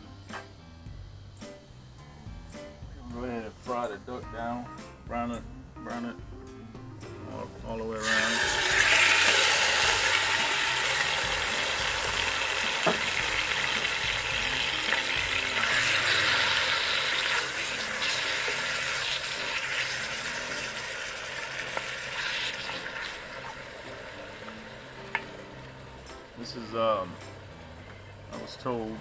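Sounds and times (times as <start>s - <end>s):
meat sizzling in a pot: 7.9s - 28.7s
sharp knock: 12.8s - 13.1s.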